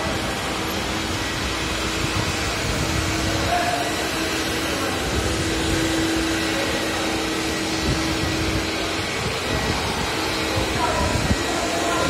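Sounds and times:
scrubber dryer motors whirring: 0.0 - 12.0
steady hum: 0.0 - 12.0.

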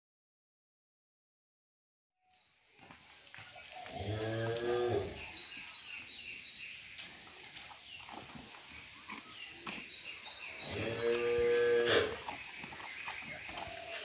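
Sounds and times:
cow mooing: 10.6 - 12.2.

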